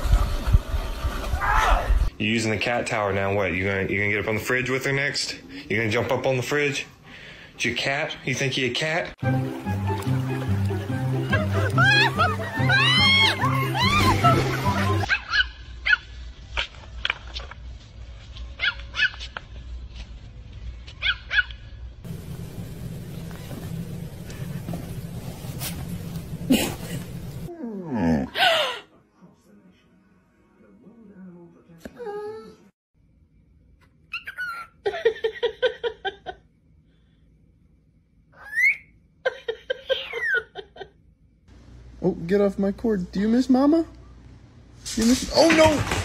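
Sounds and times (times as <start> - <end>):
small dog yapping: 15.1 - 16.8, 18.6 - 19.3, 21.0 - 21.6
parrot whistling and chirping: 38.4 - 39.0.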